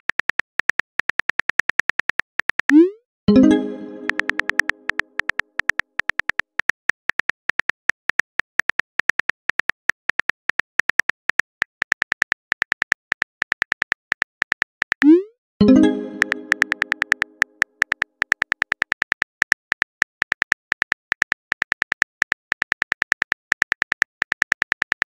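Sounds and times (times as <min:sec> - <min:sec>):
phone keyboard typing clicks: 0:00.0 - 0:15.2, 0:15.8 - 0:25.0
ringing message tone: 0:03.3 - 0:05.2, 0:15.1 - 0:17.5.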